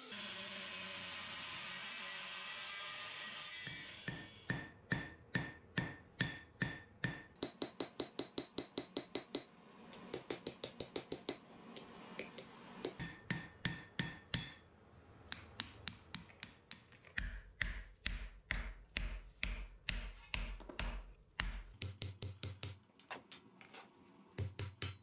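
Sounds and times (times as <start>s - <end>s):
hammer striking steel on anvil: 3.6s - 14.6s.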